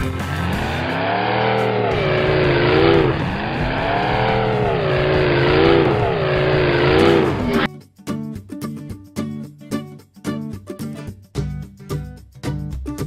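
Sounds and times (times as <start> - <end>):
race car engine revving: 0.0 - 7.7.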